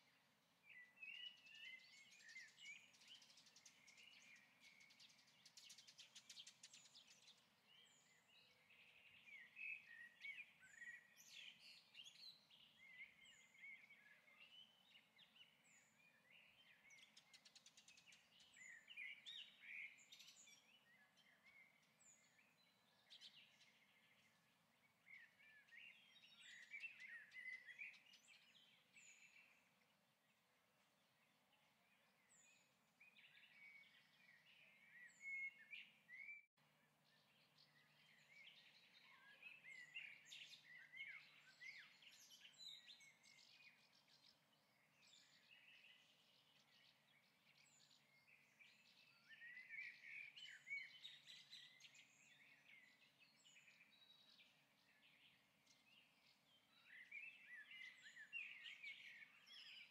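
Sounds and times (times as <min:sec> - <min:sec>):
birds chirping and warbling: 0:00.0 - 0:59.9.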